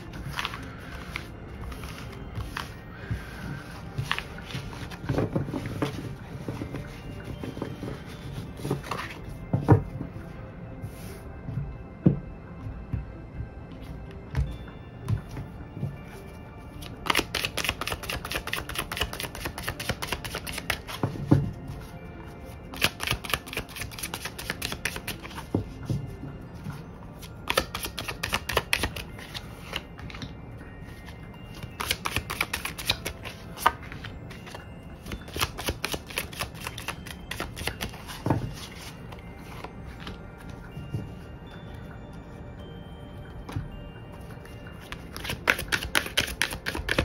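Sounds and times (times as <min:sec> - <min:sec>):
cards being shuffled: 0:00.0 - 0:09.3, 0:16.8 - 0:21.2, 0:22.7 - 0:25.6, 0:27.3 - 0:30.3, 0:30.9 - 0:40.2, 0:44.8 - 0:47.0.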